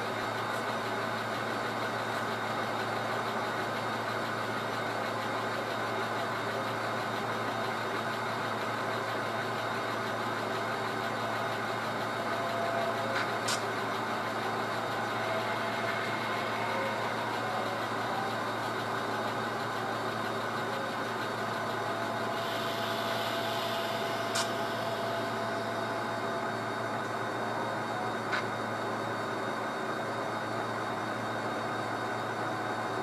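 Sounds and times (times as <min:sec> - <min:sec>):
model diesel engine drone: 0:00.0 - 0:33.0
sharp click: 0:24.4 - 0:24.6.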